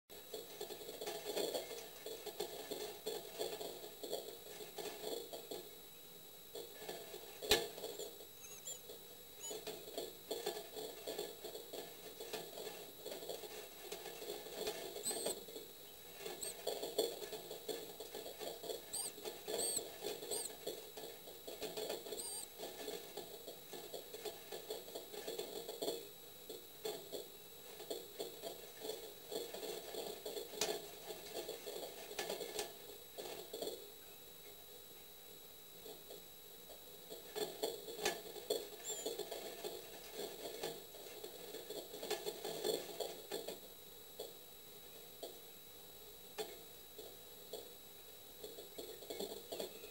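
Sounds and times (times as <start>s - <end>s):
high short chick peeps: 7.9s - 9.6s, 15.0s - 15.3s, 18.9s - 20.5s, 22.2s - 22.5s, 38.8s - 39.2s.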